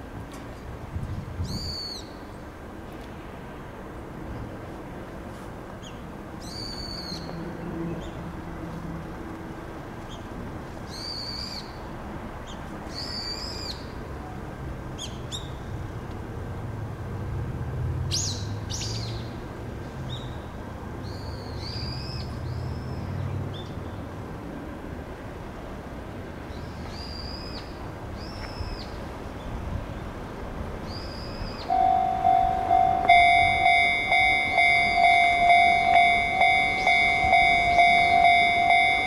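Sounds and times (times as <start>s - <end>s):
bird chip notes: 31.7s - 39.0s.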